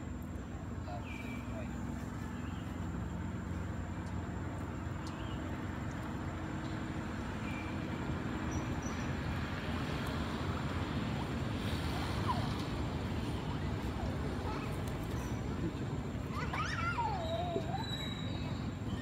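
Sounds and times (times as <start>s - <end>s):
vehicle engines rumbling: 0.0s - 19.0s.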